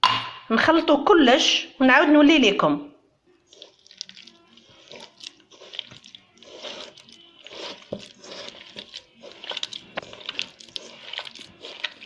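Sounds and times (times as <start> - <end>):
fingers squeezing dough in bowl: 3.3 - 12.0.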